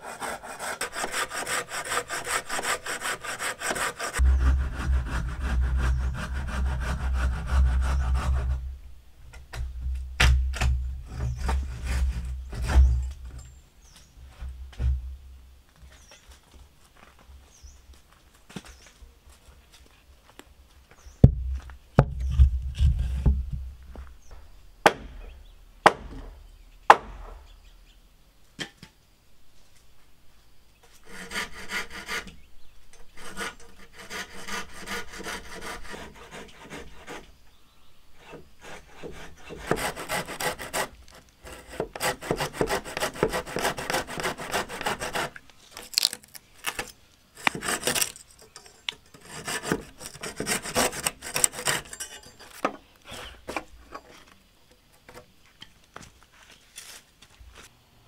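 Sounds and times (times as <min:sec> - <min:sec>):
hand saw cutting wood: 0:00.0 - 0:08.6, 0:10.6 - 0:13.1, 0:31.0 - 0:32.4, 0:33.1 - 0:37.3, 0:38.2 - 0:53.6
sharp wooden knocks: 0:24.8 - 0:27.4.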